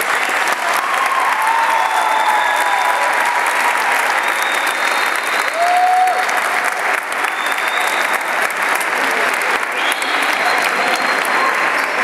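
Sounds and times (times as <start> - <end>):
group clapping: 0.0 - 12.0.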